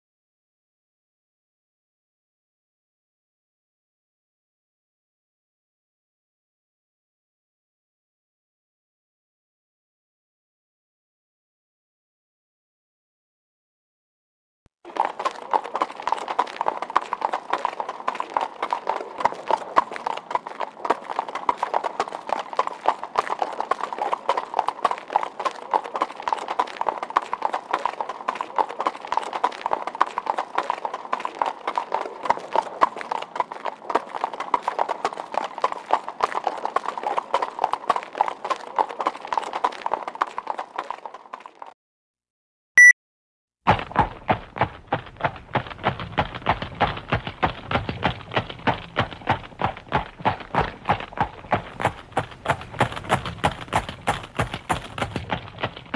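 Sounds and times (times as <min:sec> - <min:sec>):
horse hooves clip-clopping: 0:14.9 - 0:41.8, 0:43.7 - 0:55.9.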